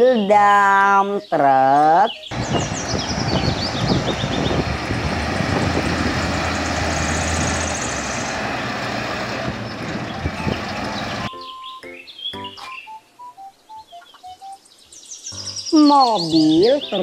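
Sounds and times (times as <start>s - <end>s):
diesel truck engine running: 2.3s - 11.3s.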